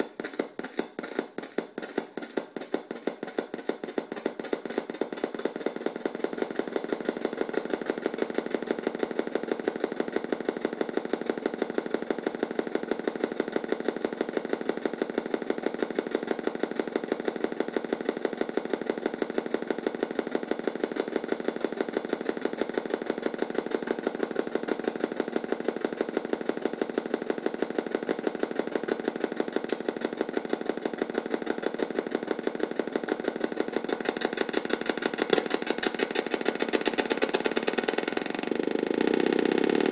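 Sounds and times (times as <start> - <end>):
square-wave synth buzzing: 37.6 - 39.9.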